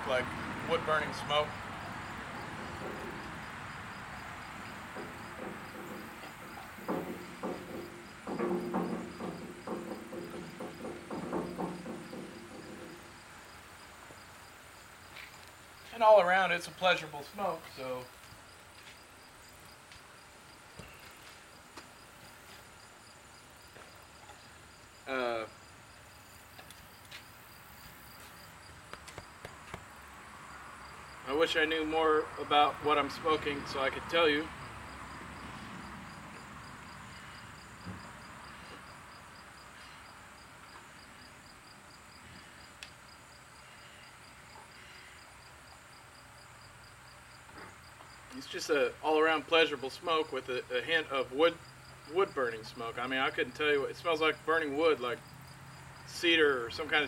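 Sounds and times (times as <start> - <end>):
background hiss: 0.0 - 57.0
crickets chirping: 0.1 - 57.0
low thump: 4.9 - 13.1
soft knocks: 4.9 - 13.1.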